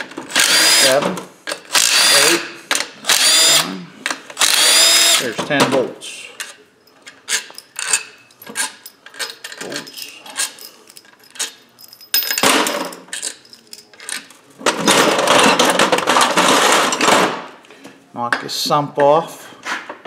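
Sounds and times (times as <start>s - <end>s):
metal tools clinking: 6.4s - 16.3s.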